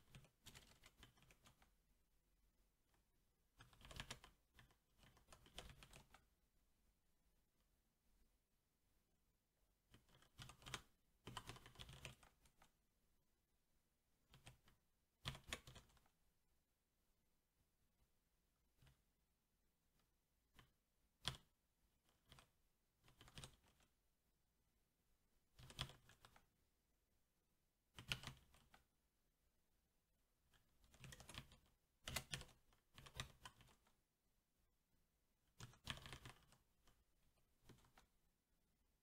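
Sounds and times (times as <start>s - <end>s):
mechanical keyboard typing: 0.0s - 1.7s, 3.6s - 6.2s, 9.9s - 12.7s, 14.3s - 16.0s, 22.1s - 23.9s, 25.5s - 26.4s, 28.0s - 28.8s, 30.8s - 33.9s, 35.6s - 36.7s.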